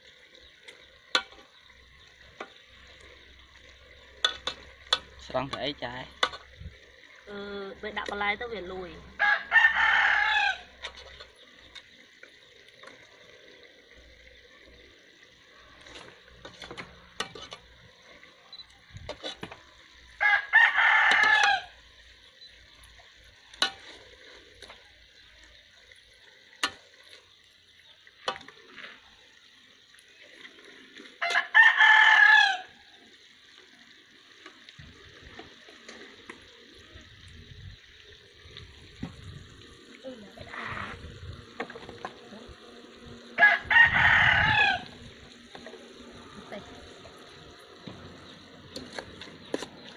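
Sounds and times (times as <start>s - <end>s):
rooster crowing: 9.2s - 10.8s, 20.2s - 21.8s, 31.2s - 32.8s, 43.3s - 45.0s.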